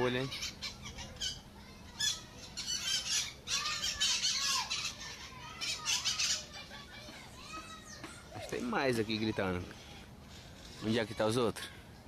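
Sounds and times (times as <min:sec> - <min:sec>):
parrots screeching: 0:00.0 - 0:06.8.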